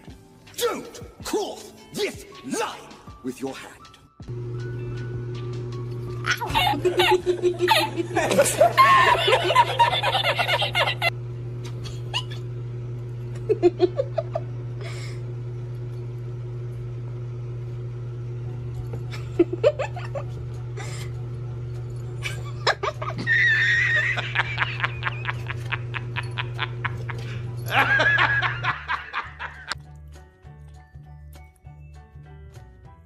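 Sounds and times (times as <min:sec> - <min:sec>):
low hum: 0:04.3 - 0:29.7
man laughing: 0:06.3 - 0:11.1, 0:11.8 - 0:12.4, 0:13.4 - 0:15.2, 0:19.1 - 0:21.0, 0:22.2 - 0:29.8.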